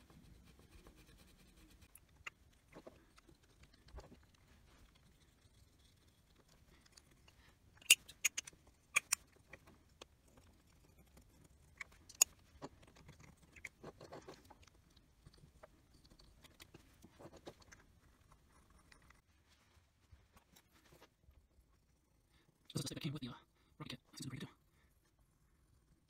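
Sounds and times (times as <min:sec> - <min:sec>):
sharp clicks and short scratches: 0:00.0 - 0:19.3.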